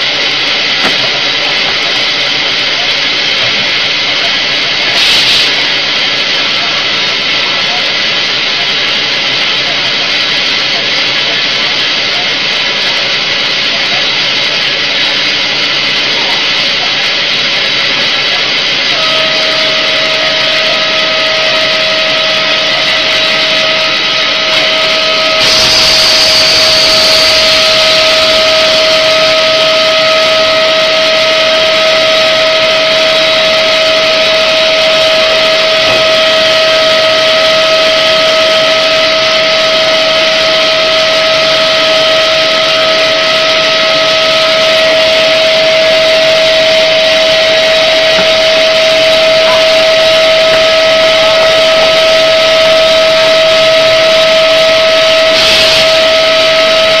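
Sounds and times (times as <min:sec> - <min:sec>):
machine whine: 0:00.0 - 0:57.0
mechanical hiss: 0:04.9 - 0:05.7.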